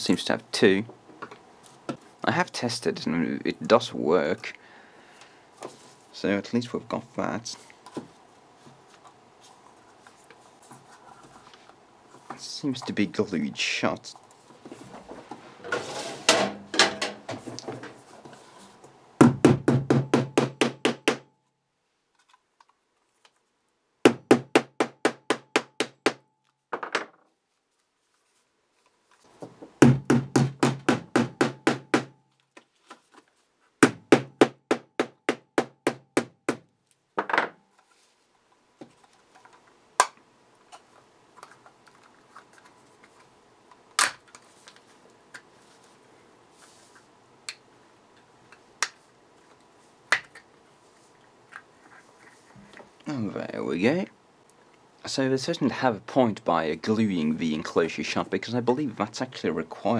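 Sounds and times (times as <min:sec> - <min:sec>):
sharp knocks on plastic: 0:19.2 - 0:21.3, 0:24.1 - 0:26.2, 0:29.8 - 0:32.2.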